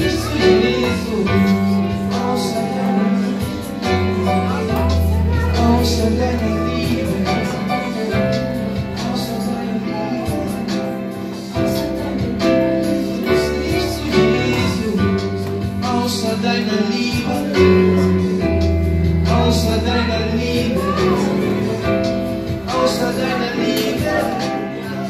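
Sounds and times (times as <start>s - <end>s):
women singing: 0.0s - 8.2s, 19.4s - 25.0s
worship band with drums and bass: 0.0s - 25.0s.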